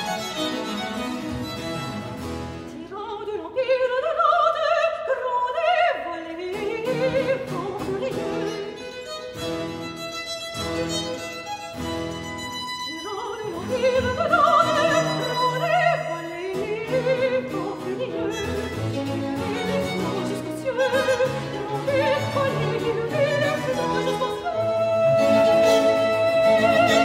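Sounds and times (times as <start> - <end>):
violin: 0.0 - 27.0
soprano singing: 2.7 - 9.5, 12.5 - 27.0
viola da gamba: 6.6 - 27.0.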